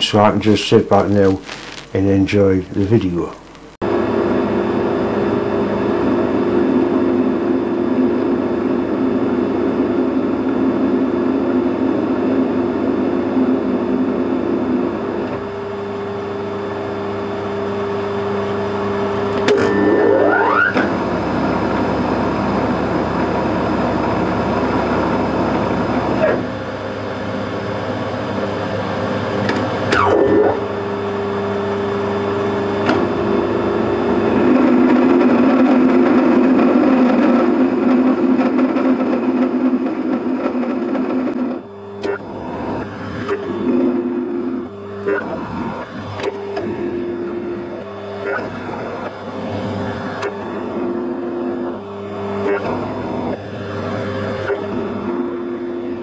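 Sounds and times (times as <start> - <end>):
metal lathe motor hum: 13.6 - 56.0.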